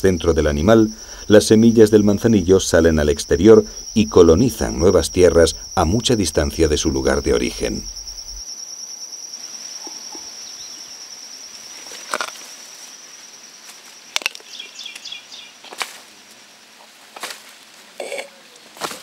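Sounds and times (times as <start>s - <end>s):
pulsing insect trill: 0.0s - 14.2s.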